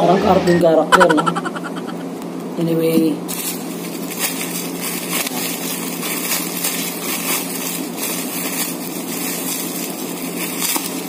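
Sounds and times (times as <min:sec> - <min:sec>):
bubble wrap crinkling: 0:03.3 - 0:11.0.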